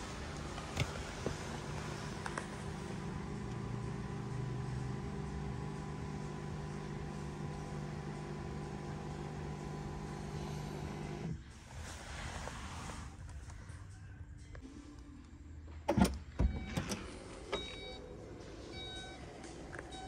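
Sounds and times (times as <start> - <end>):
electric motor humming: 0.0 - 11.4.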